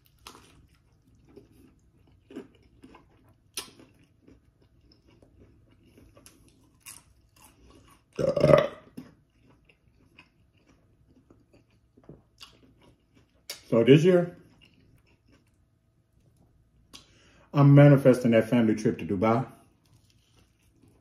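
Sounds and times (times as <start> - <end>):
chewing with wet smacking: 0.0 - 17.2, 19.6 - 21.0
crunching crust: 0.0 - 17.2, 19.6 - 21.0
throaty sound: 8.2 - 8.9.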